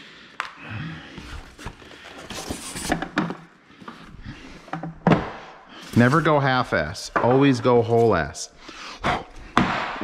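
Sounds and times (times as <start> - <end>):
cardboard and foam rustling: 1.1 - 4.0.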